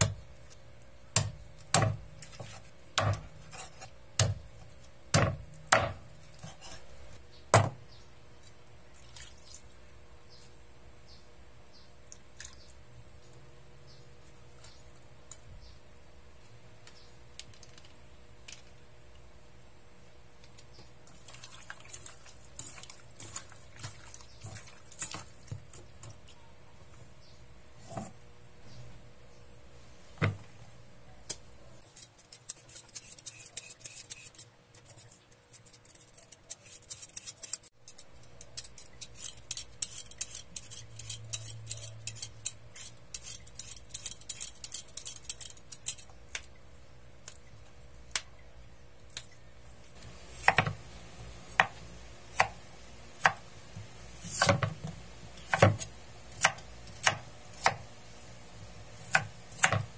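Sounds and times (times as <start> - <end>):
peeler scraping potato: 3.3 - 4.0, 6.3 - 6.9, 31.8 - 46.1
hands mixing chicken in metal bowl: 20.8 - 26.6.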